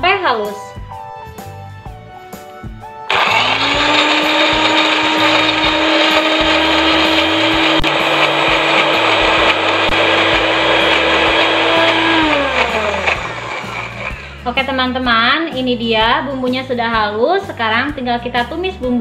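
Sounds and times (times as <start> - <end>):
blender motor running: 3.1 - 14.5.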